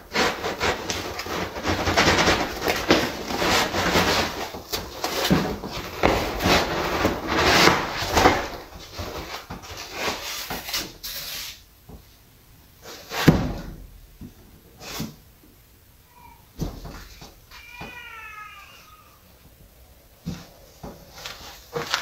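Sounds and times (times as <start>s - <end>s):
foam scraping out of wooden crate: 0.0s - 11.6s.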